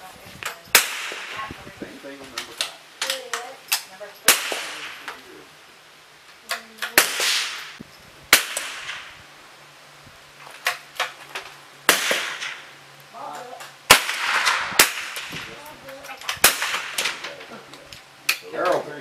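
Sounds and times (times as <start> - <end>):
rifle shots echoing: 0.7 - 1.6, 4.2 - 5.2, 6.8 - 9.2, 11.8 - 12.8, 13.8 - 15.6, 16.3 - 17.5.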